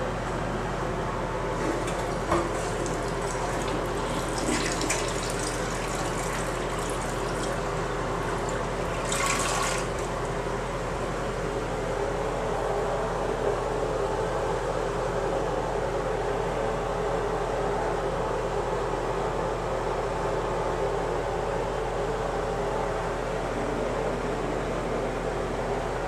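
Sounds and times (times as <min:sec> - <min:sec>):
steady hum: 0:00.0 - 0:26.0
toilet flushing: 0:01.5 - 0:10.4.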